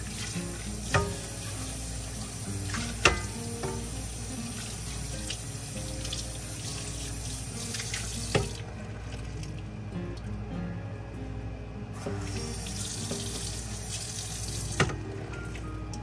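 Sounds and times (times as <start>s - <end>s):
tap water running into sink: 0.0s - 8.7s, 12.2s - 15.0s.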